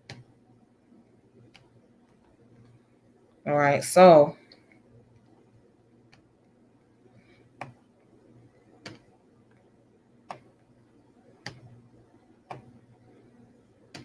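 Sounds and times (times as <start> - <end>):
computer mouse clicks: 0.0 - 0.3, 1.4 - 2.8, 8.8 - 9.7, 10.3 - 10.7, 11.4 - 11.8, 12.4 - 12.8
faint low hum: 0.0 - 14.0.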